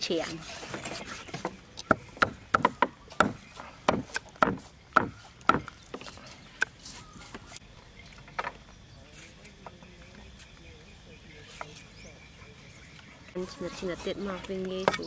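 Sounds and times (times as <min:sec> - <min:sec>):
cleaver chopping on wooden block: 0:01.8 - 0:05.8.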